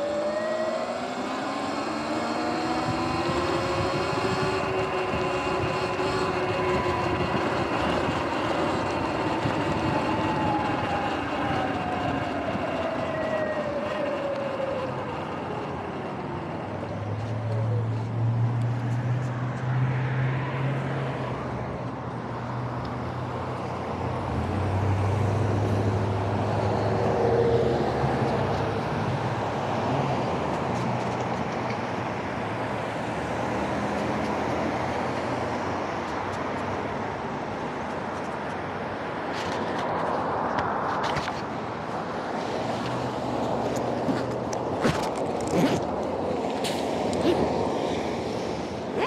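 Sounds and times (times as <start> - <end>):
vehicles passing: 0.0 - 49.0
tyres hissing on wet road: 46.4 - 48.9.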